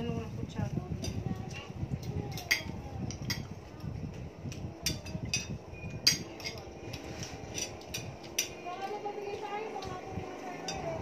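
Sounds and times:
cutlery clinking against plates: 0:01.0 - 0:03.6, 0:04.5 - 0:09.9, 0:10.6 - 0:11.0.

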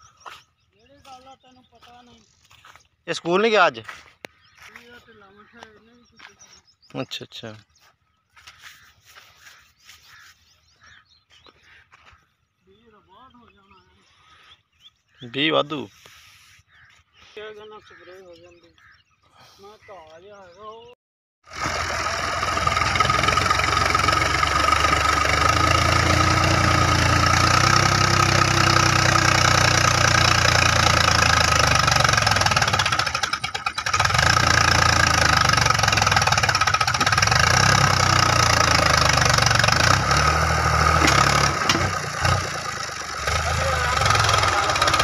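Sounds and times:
tractor diesel engine under load: 0:21.4 - 0:45.0.

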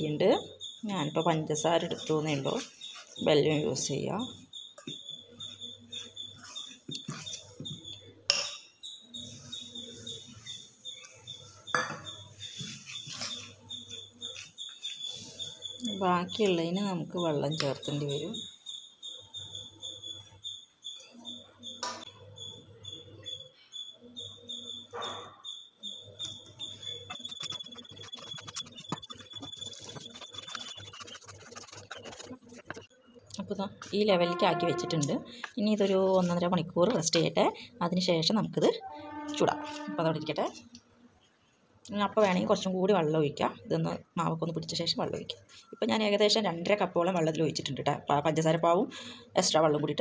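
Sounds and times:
spoon stirring dough in a bowl: 0:01.4 - 0:08.6, 0:09.4 - 0:18.3, 0:26.0 - 0:37.3
hands squishing wet dough: 0:27.1 - 0:32.8.

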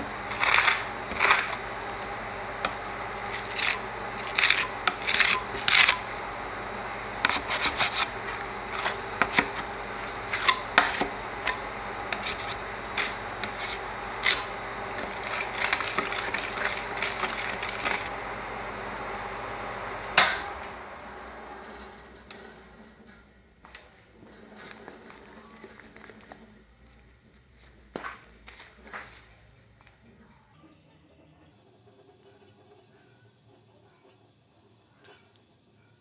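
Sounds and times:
metal spatulas scraping cold plate: 0:00.3 - 0:01.6, 0:02.6 - 0:06.2, 0:07.2 - 0:18.1.

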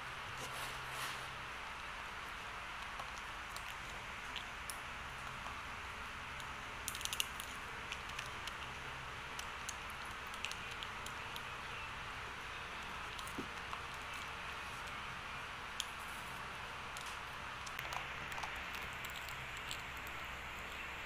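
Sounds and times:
dry noodles crunching: 0:06.4 - 0:11.7, 0:15.7 - 0:21.0.

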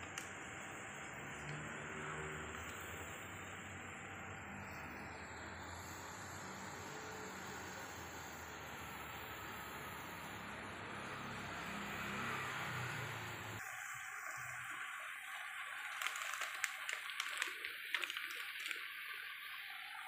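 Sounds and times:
water boiling bubbling hiss: 0:00.0 - 0:20.0
plastic packet crinkling: 0:15.2 - 0:19.3.

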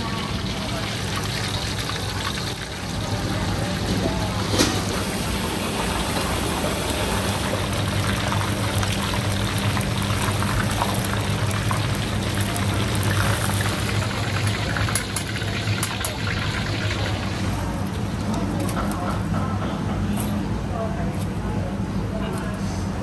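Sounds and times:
liquid boiling: 0:00.0 - 0:17.7
cooking equipment hum and hiss: 0:00.0 - 0:23.0.

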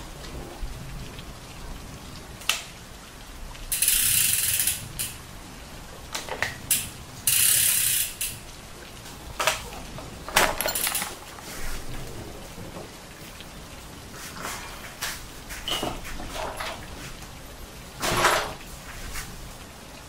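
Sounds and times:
wrench ratcheting clicks: 0:03.7 - 0:05.1, 0:06.7 - 0:08.4.

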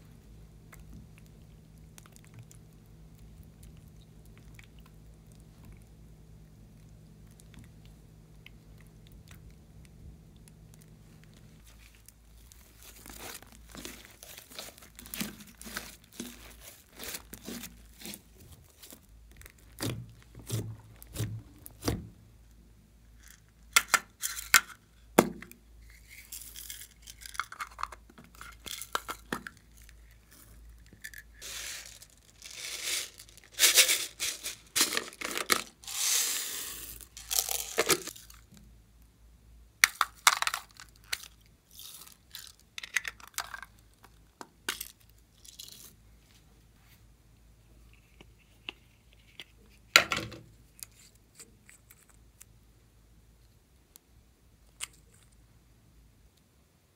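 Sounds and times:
hands squeezing slime: 0:06.6 - 0:21.9
sprinkles poured into glass dish: 0:31.4 - 0:38.3.

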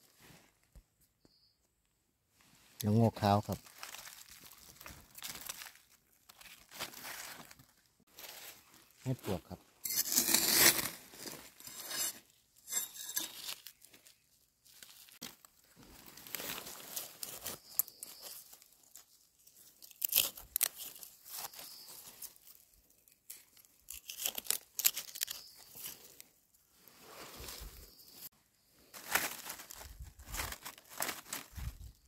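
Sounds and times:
digging in soil and leaves: 0:02.6 - 0:32.0
knife scraping: 0:09.8 - 0:13.7.

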